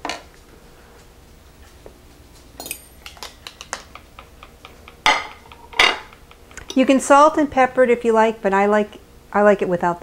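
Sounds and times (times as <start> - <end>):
fork clinking on ceramic plate: 2.6 - 6.2.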